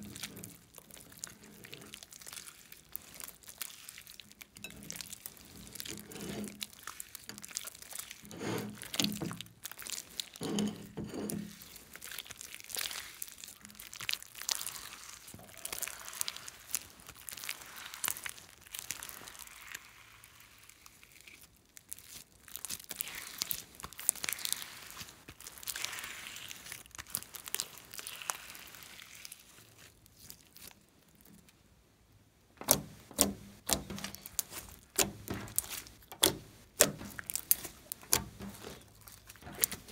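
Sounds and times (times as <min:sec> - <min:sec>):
slime squishing and popping: 0:08.8 - 0:10.4, 0:11.5 - 0:31.2, 0:32.6 - 0:39.9.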